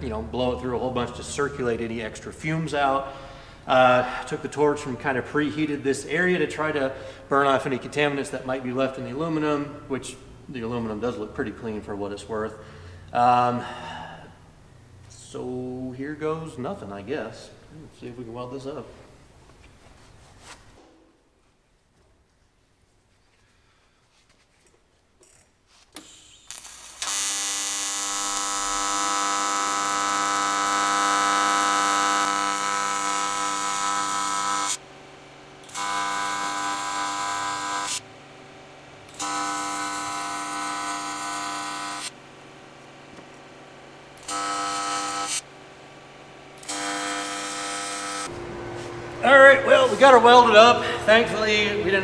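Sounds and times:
welding arc buzzing: 0:26.0 - 0:51.8.

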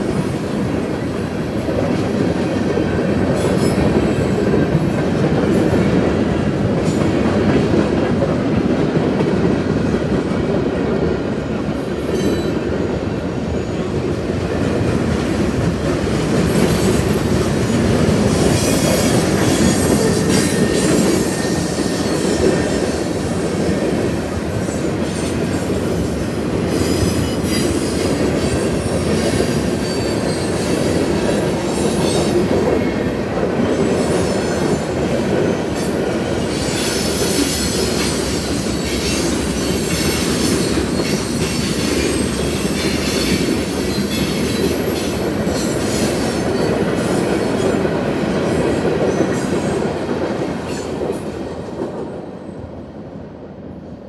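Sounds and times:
train wheels clattering on rails: 0:00.0 - 0:52.4
high wheel squeal: 0:18.3 - 0:23.1, 0:29.6 - 0:32.4.

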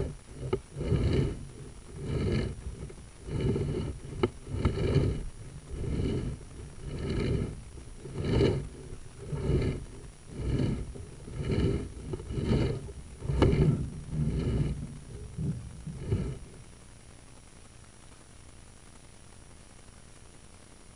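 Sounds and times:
cable scraping in pipe: 0:00.0 - 0:16.8.

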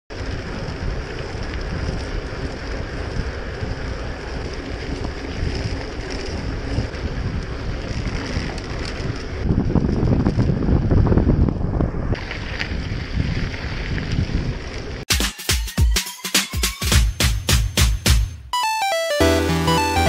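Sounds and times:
wind buffeting microphone: 0:00.1 - 0:15.0.

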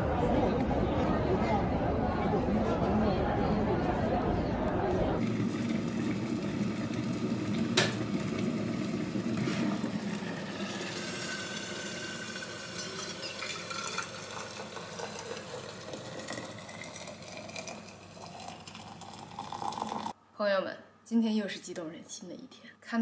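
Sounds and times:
water pouring into flask: 0:05.2 - 0:20.1
electric kettle boiling: 0:05.2 - 0:20.2.

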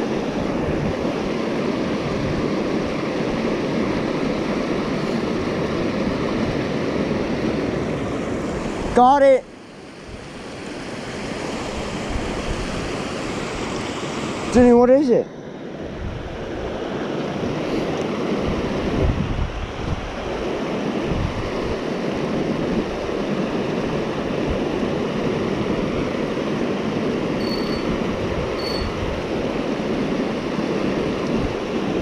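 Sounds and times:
wind buffeting microphone: 0:18.4 - 0:26.2
short high chirps: 0:27.4 - 0:27.9, 0:28.6 - 0:29.0.

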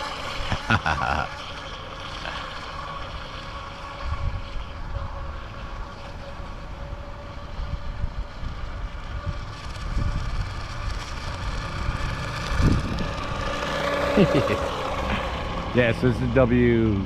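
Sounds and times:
rc boat whine: 0:00.0 - 0:17.0
wind rumbling on microphone: 0:03.8 - 0:17.0.

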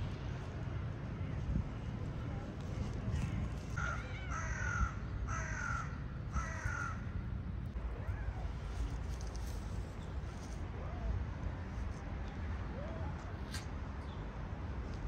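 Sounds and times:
crow cawing: 0:03.8 - 0:07.0.

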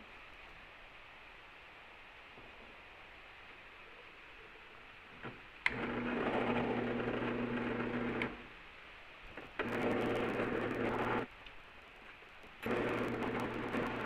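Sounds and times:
drill press motor humming: 0:05.6 - 0:08.4, 0:09.6 - 0:11.3, 0:12.6 - 0:14.0.

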